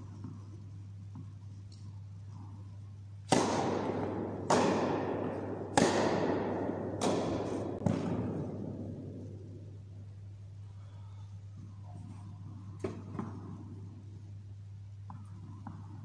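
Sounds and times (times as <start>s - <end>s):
tennis rackets hitting ball: 3.2s - 10.1s, 11.6s - 14.1s, 15.1s - 16.0s.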